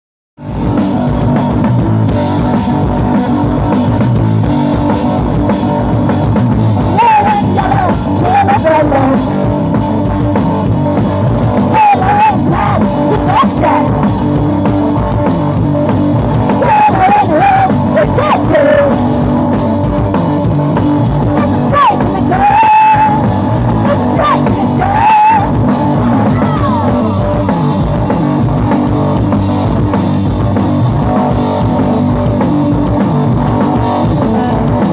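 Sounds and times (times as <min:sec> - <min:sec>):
drum kit playing: 0:00.4 - 0:34.9
electric guitar: 0:00.4 - 0:34.9
person singing: 0:06.8 - 0:09.4, 0:11.5 - 0:14.0, 0:16.4 - 0:19.1, 0:21.2 - 0:27.8.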